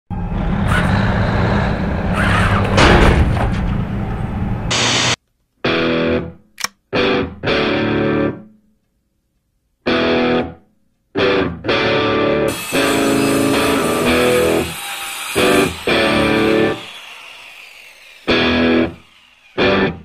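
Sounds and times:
distorted electric guitar rock music: 4.7 - 8.5, 9.9 - 10.6, 11.2 - 14.6.

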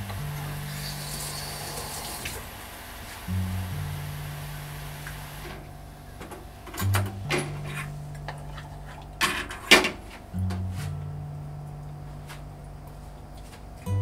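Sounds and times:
simple background tune: 0.0 - 1.8, 3.3 - 14.0
sauce boiling with fizzing hiss: 0.6 - 3.4.

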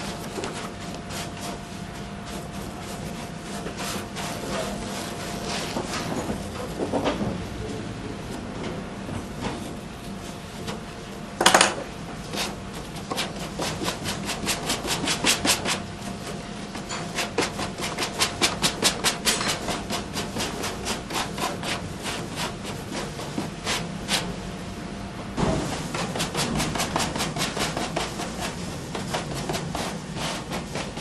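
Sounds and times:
brush dabbing paper: 25.8 - 31.0.

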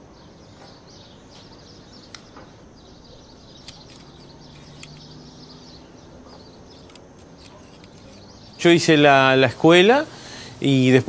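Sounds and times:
faint bird chirps: 0.0 - 10.7
light sharp clicks: 2.1 - 2.5, 3.6 - 5.2.

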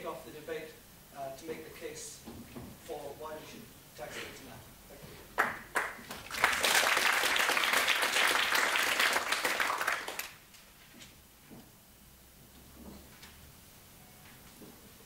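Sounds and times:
audience applauding: 5.4 - 10.4.

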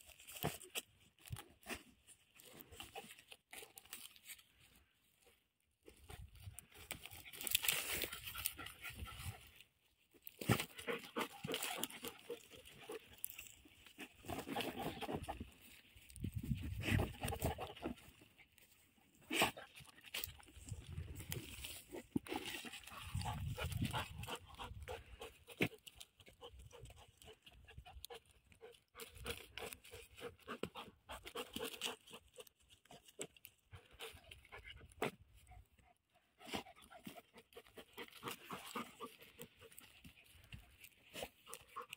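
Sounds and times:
dry straw rustling and crunching: 0.0 - 5.3, 5.9 - 25.2
dogs sniffing and snuffling: 0.0 - 41.9
dry straw crackling: 6.4 - 9.6, 10.2 - 17.8.

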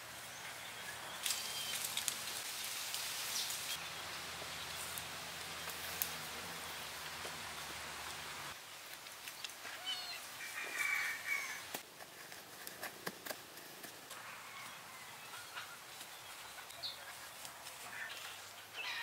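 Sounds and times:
birds calling: 0.0 - 2.3, 14.2 - 19.0.

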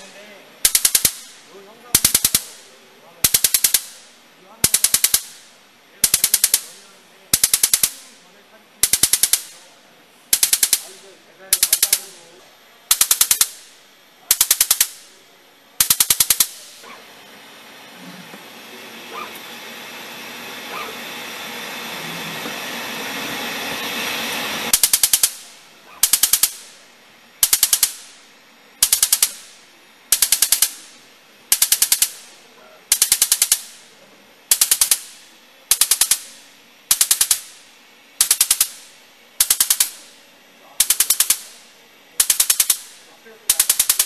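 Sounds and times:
rapid sharp laser snaps: 0.0 - 8.2, 8.8 - 9.7, 10.3 - 12.3, 12.9 - 15.2, 15.8 - 16.9, 24.7 - 26.8, 27.4 - 28.2, 28.8 - 32.3, 32.9 - 33.9, 34.5 - 37.6, 38.2 - 40.2, 40.8 - 41.6, 42.2 - 44.0
hiss: 27.4 - 28.2, 28.8 - 33.9, 34.5 - 37.6, 38.2 - 41.6, 42.2 - 44.0.

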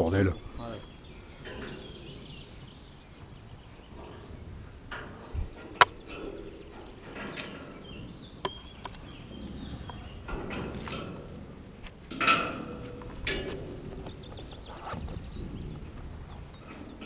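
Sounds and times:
handling clicks and knocks: 9.8 - 17.0.

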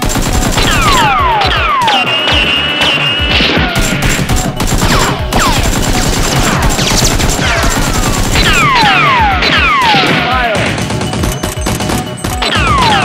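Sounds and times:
rapid gunfire sound effects: 0.0 - 13.0
falling bullet whistles: 1.8 - 3.5.

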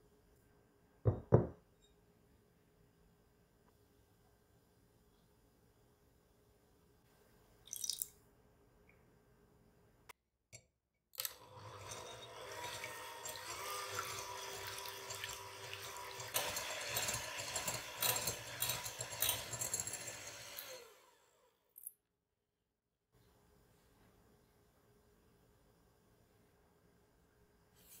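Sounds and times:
electric hand mixer whirring: 11.2 - 21.5.

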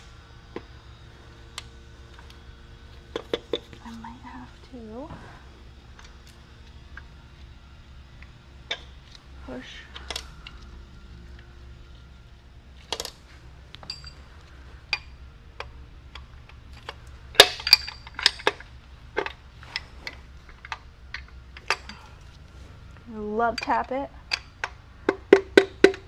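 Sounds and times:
low steady hum: 0.0 - 26.0
hand tools tapping on metal: 13.7 - 14.2, 23.2 - 26.0.

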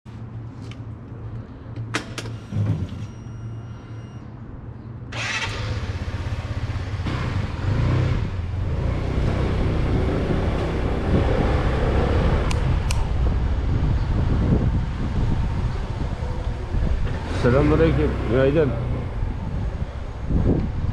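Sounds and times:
scooter engine: 5.1 - 12.8
wind rushing over microphone: 7.3 - 20.9.

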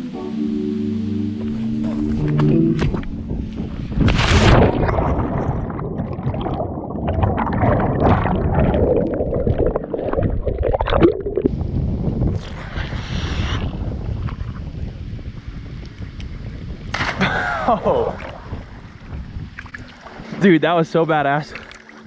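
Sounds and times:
muffled underwater rumble and bubbling: 1.3 - 22.0
water slapping at microphone: 1.8 - 11.5
splash into river: 4.0 - 5.7.

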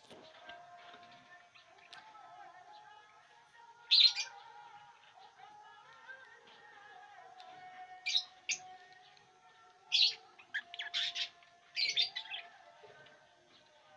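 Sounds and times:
lovebirds chirping: 3.7 - 13.9.

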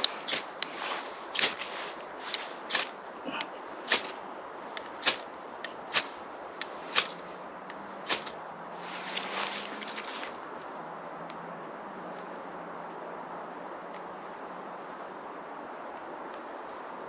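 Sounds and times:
fire steel strikes rasping: 0.0 - 4.2, 4.8 - 7.3, 8.0 - 8.4
soft rushing noise: 0.0 - 17.0.

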